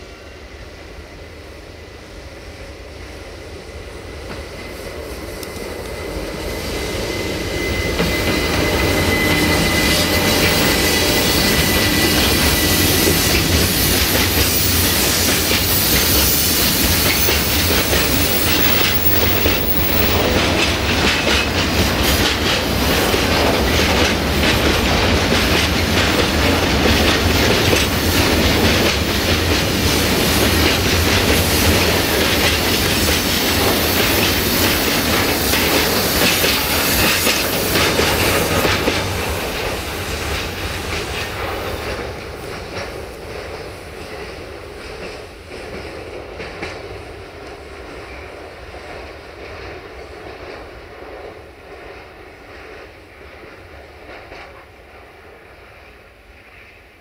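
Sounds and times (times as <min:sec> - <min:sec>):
train wagons rolling on rails: 0:03.4 - 0:55.9
wheels clacking over rail joints: 0:07.5 - 0:47.6.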